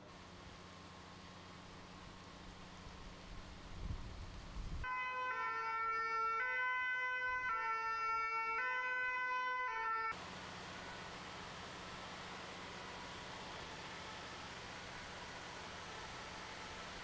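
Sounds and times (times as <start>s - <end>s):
two-tone siren: 4.8s - 10.2s.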